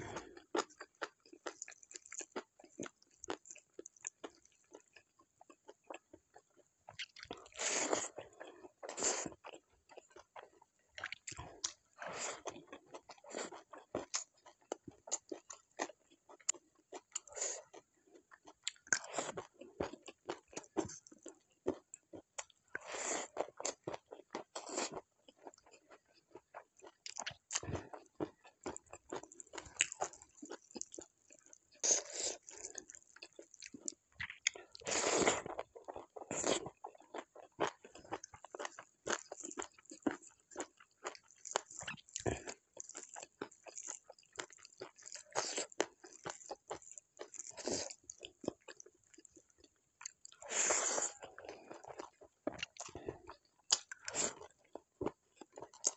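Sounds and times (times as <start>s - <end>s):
person chewing crunchy food: 0.0s - 55.9s.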